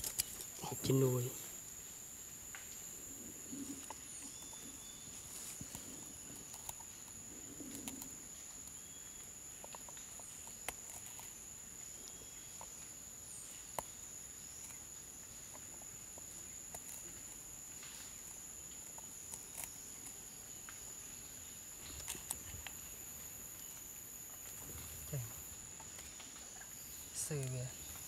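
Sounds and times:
high insect drone: 0.0 - 28.0.

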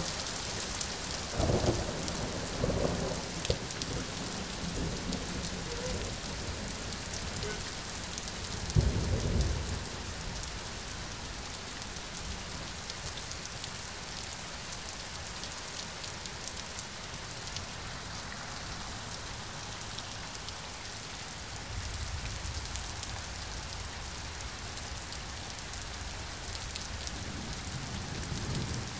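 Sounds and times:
rain pattering: 0.0 - 28.9
thunder clap rumbling: 1.3 - 10.1.

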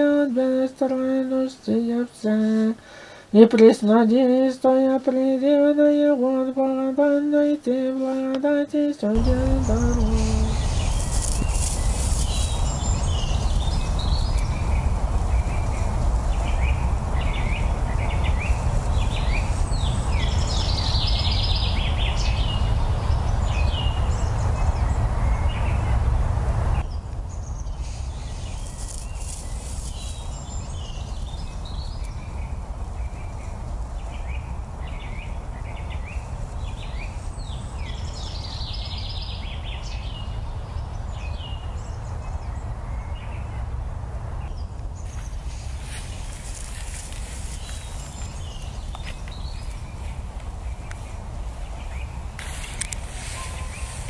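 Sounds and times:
small birds chirping: 9.1 - 25.9, 26.8 - 43.5, 44.5 - 54.0
steady rushing noise: 9.1 - 38.8, 41.8 - 54.0.

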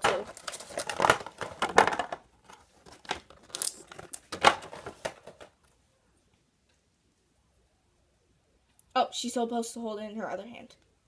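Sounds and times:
plastic packaging crinkling: 0.0 - 5.5.

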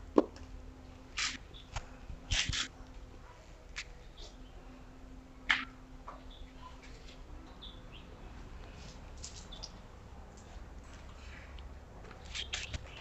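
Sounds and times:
faint bird chirps: 7.5 - 8.2.

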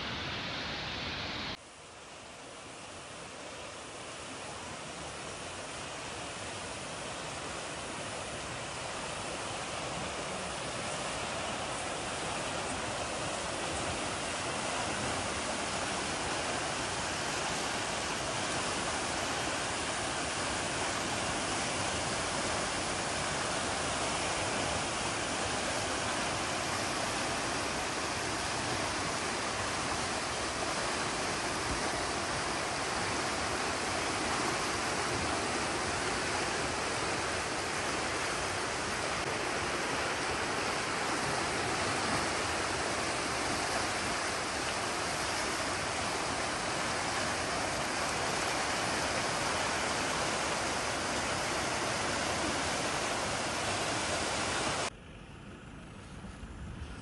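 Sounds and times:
river rushing over rocks: 0.0 - 54.9.

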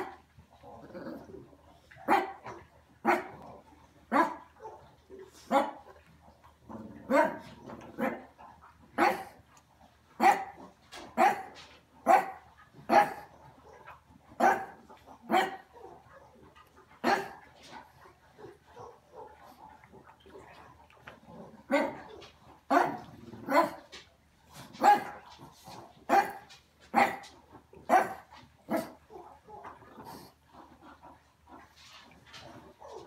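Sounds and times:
dog barking: 2.0 - 3.4, 4.1 - 6.0, 7.1 - 8.3, 9.0 - 9.4, 10.2 - 17.5, 18.4 - 19.7, 21.7 - 24.0, 24.7 - 29.8.

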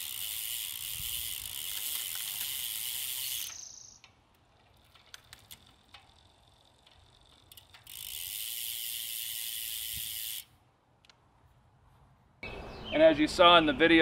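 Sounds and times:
bicycle chain and hub whirring: 0.0 - 10.7
derailleur clicks: 0.0 - 11.2.

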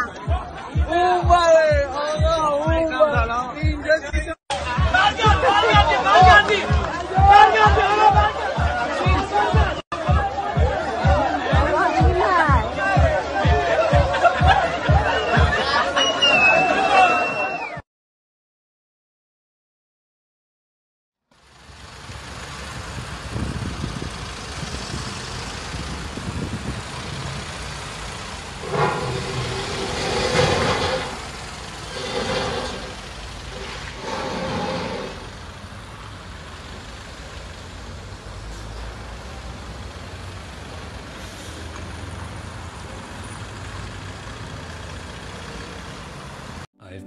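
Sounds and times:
truck engine running: 21.4 - 46.6.

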